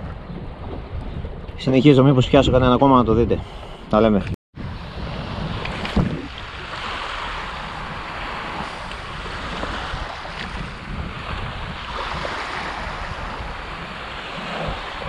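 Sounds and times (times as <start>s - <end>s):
wind rumbling on microphone: 0.0s - 15.0s
waves washing onto pebbly shore: 5.4s - 15.0s.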